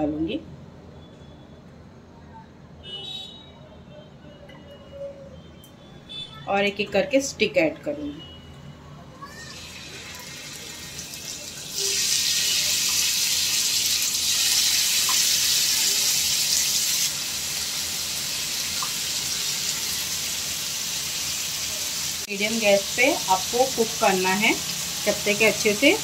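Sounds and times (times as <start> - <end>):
chicken sizzling in a grill pan: 9.8 - 26.0.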